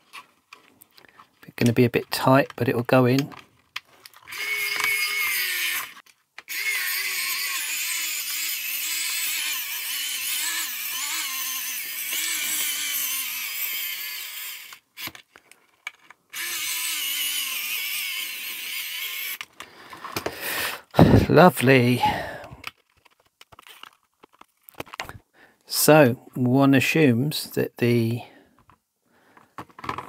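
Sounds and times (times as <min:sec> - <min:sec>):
electric screwdriver motor whine: 0:04.3 - 0:15.1, 0:16.3 - 0:19.5.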